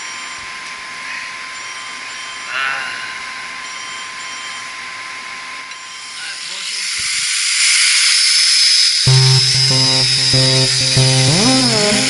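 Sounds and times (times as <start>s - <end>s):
equipment hiss and whine: 6.0s - 12.0s.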